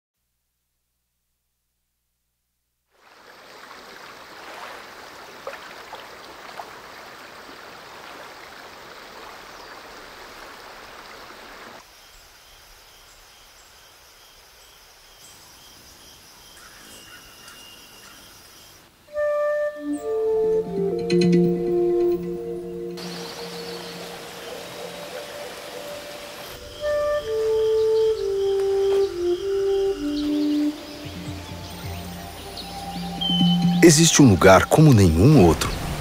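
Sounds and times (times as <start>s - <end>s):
water running down cascade: 3.0s - 11.8s, 23.0s - 27.5s
bell-like music tones: 31.6s - 34.8s
steady repeating chirp: 32.8s - 34.6s.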